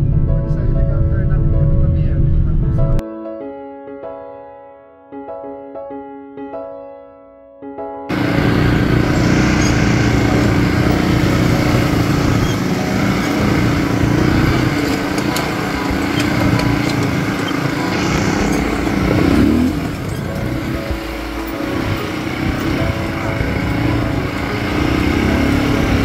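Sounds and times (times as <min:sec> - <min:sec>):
buggy engine running: 0:08.1 - 0:26.0
rough-road noise: 0:08.1 - 0:26.0.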